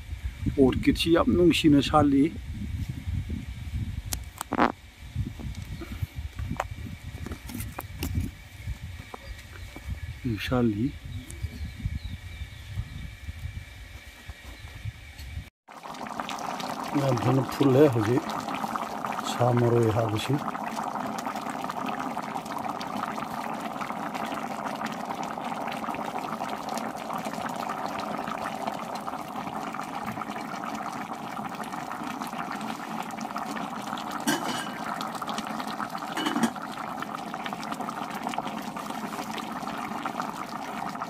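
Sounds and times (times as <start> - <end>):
curry bubbling in a pot: 15.7 - 41.0.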